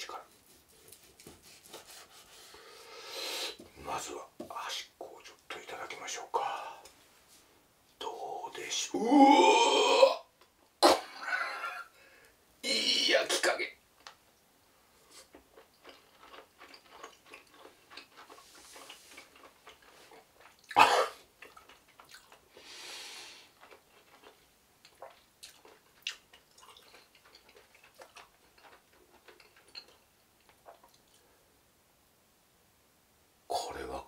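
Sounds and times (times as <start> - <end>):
man chewing: 15.0 - 31.3
breathy exhale: 22.6 - 23.5.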